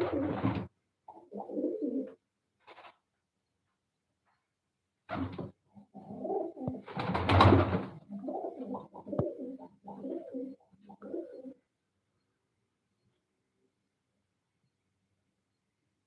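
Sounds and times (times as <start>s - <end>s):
pigeons cooing: 0.0s - 2.2s, 5.2s - 7.0s, 7.9s - 11.7s.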